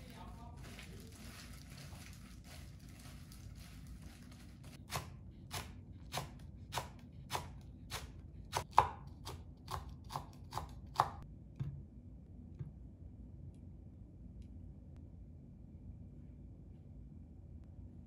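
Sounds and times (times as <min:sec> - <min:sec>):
knife chopping on wooden board: 0:04.8 - 0:11.2.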